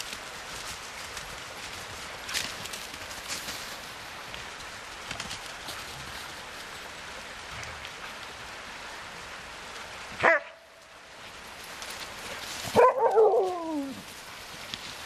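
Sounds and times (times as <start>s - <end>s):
dog yelping: 12.8s - 14.0s.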